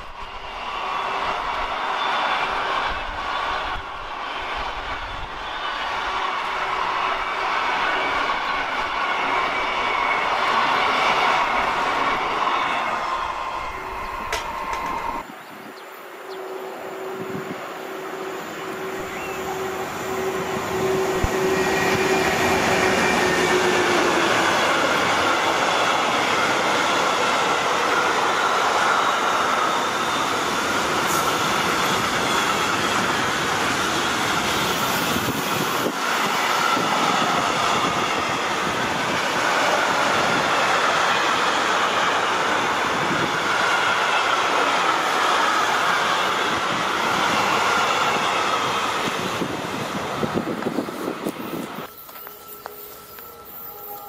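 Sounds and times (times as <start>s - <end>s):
train wheels rolling on rails: 0.0s - 15.4s, 16.1s - 54.0s
electric locomotive whine: 0.0s - 54.0s
faint thin squeal: 51.5s - 54.0s.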